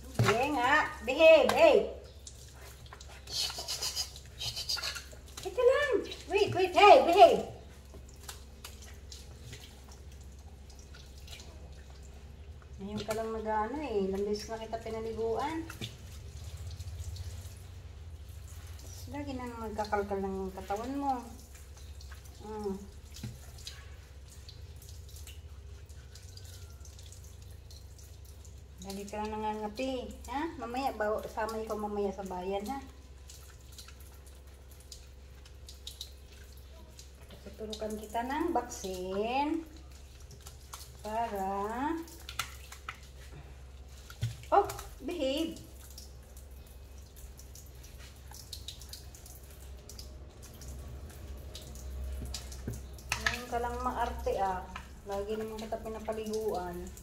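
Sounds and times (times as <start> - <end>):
woman's voice: 0.0 - 2.0, 5.4 - 7.6, 12.8 - 15.7, 19.0 - 21.4, 22.4 - 22.9, 28.8 - 32.9, 37.4 - 39.6, 41.0 - 42.1, 44.5 - 45.7, 53.1 - 57.0
faucet running water: 0.0 - 57.0
low steady hum: 0.0 - 57.0
water splashing and dripping: 0.0 - 57.0.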